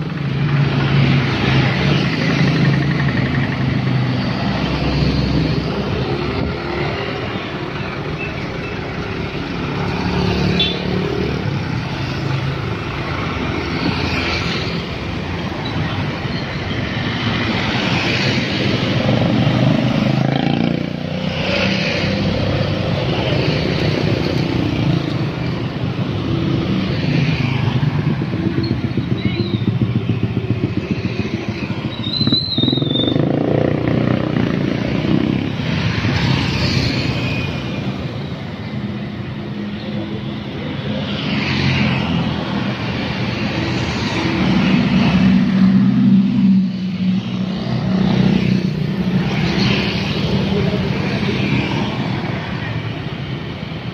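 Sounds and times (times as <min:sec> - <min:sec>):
road traffic passing: 0:00.0 - 0:53.9.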